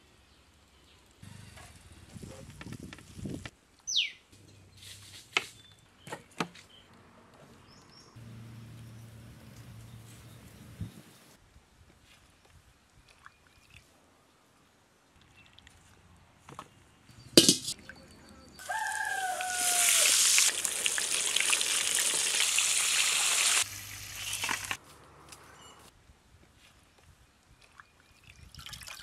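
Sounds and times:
chicken sizzling in hot oil: 0:18.6 - 0:24.8.

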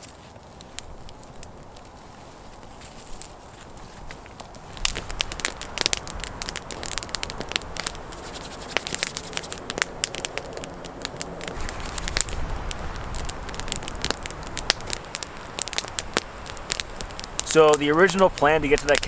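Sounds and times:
campfire crackling and popping: 0:00.0 - 0:19.0.

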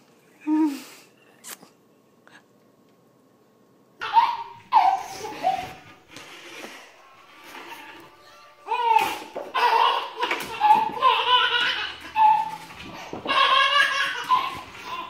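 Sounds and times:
baby laughing: 0:04.0 - 0:06.0, 0:08.7 - 0:15.0.

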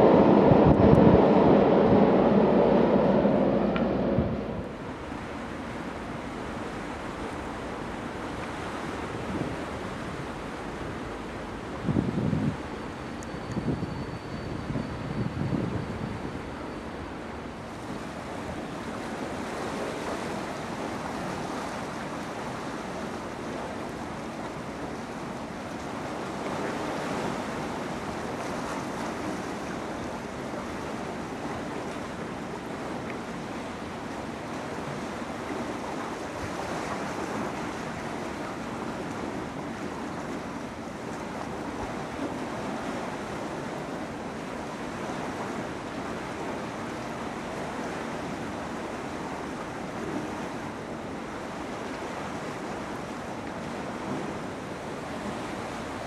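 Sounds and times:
wind on microphone: 0:00.0 - 0:07.3, 0:08.5 - 0:24.1.

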